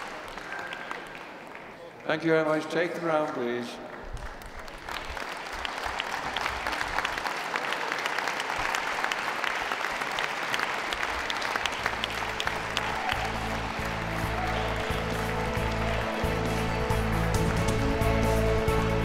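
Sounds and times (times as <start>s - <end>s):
audience applauding: 0.0s - 19.0s
background music: 11.7s - 19.0s.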